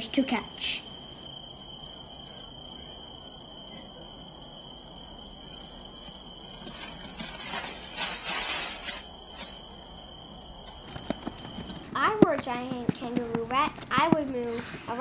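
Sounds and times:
high insect trill: 0.0s - 14.1s
scuffling and spraying sand: 5.5s - 11.9s.

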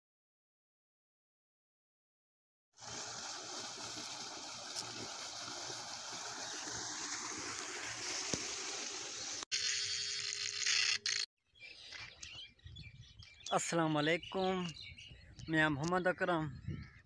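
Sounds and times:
water pouring into concrete tank: 2.8s - 9.5s.

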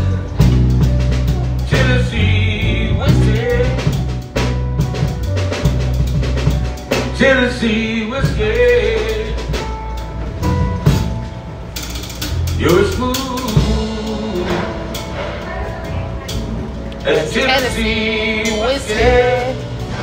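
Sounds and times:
bass guitar: 0.0s - 20.0s
drum kit: 0.0s - 20.0s
man singing: 1.6s - 4.1s, 7.0s - 9.6s, 12.6s - 15.0s, 17.0s - 19.8s.

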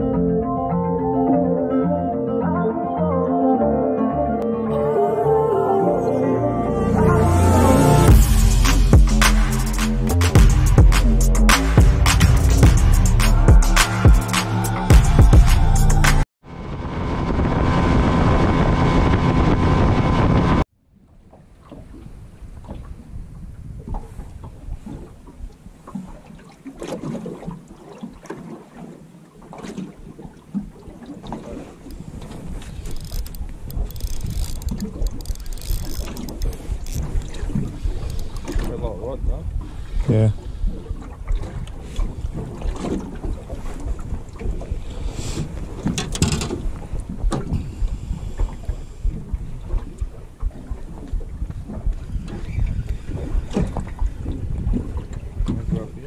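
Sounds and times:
small waves slapping metal hull: 20.9s - 56.0s
knocks and rattles in boat: 21.2s - 56.0s
wind buffeting microphone: 21.7s - 25.8s, 31.8s - 56.0s.

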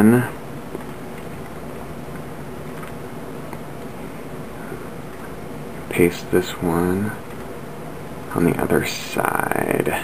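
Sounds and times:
low room tone hum and hiss: 0.0s - 10.0s.

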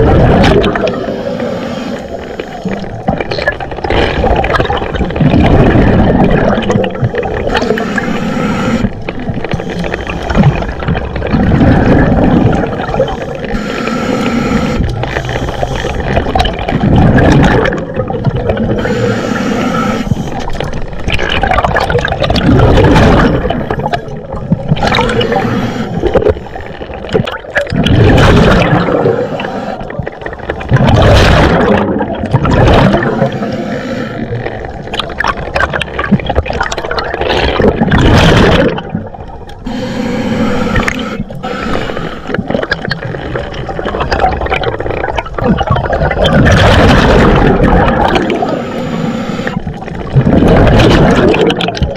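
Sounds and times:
rushing bursts of exhaled bubbles: 0.0s - 51.9s
diver breathing through regulator: 0.7s - 2.9s, 7.1s - 10.8s, 11.4s - 16.3s, 18.7s - 20.7s, 24.8s - 27.1s, 28.4s - 30.7s, 32.9s - 34.8s, 39.6s - 42.7s, 46.8s - 49.7s.

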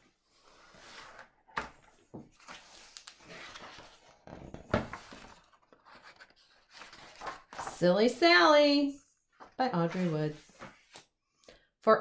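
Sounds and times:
book pages rustling: 0.3s - 7.8s, 9.4s - 11.1s
page flapping: 2.4s - 7.8s.

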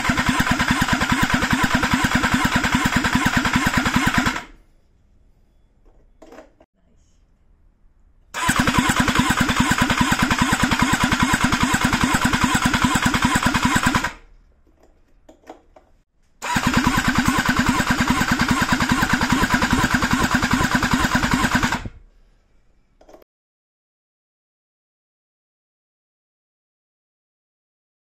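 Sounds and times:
engine cranking on starter motor: 0.0s - 4.6s, 8.3s - 14.2s, 16.4s - 22.0s.

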